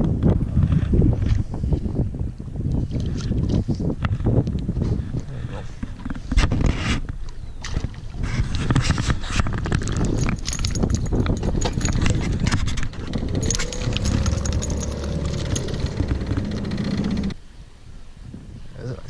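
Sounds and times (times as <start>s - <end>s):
fishing reel whining: 13.0s - 17.4s.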